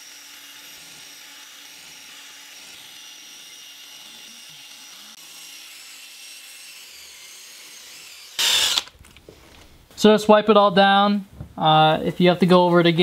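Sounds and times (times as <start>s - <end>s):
cordless drill whining: 0.0s - 9.7s.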